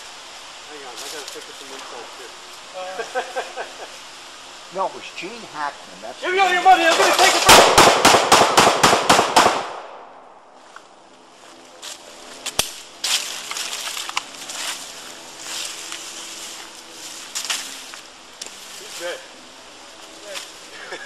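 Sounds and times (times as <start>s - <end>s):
footsteps crunching dry leaves: 0.7s - 3.5s, 10.5s - 21.0s
rustling: 10.6s - 19.3s.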